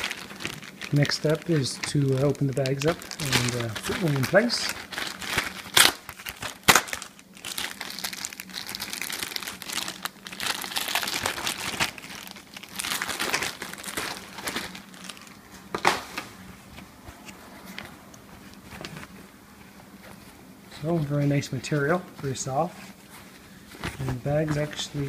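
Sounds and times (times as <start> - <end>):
plastic wrapper crinkling: 0.0 - 16.0.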